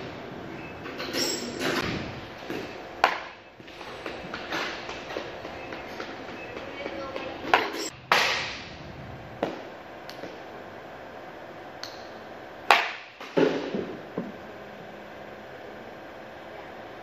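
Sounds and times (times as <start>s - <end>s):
bat cracking balls off tee: 1.4s - 6.3s, 7.5s - 10.8s, 11.7s - 14.4s.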